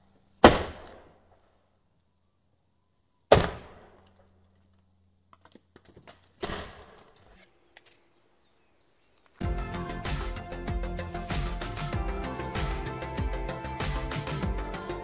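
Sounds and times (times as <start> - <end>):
small clicks: 7.2 - 8.1
music: 9.4 - 15.0.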